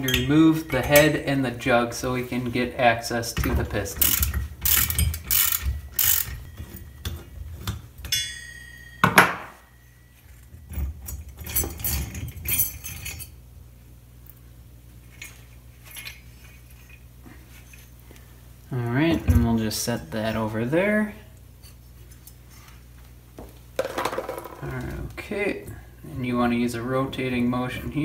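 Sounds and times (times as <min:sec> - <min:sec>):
metal scrapes and clinks: 0:03.9 - 0:13.4, 0:15.0 - 0:18.0
socket ratchet clicking: 0:04.0 - 0:06.4.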